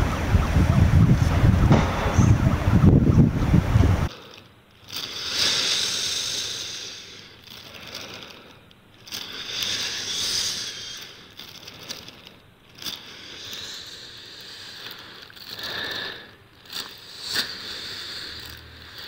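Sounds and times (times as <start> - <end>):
plastic bag crinkling: 7.2 - 19.0.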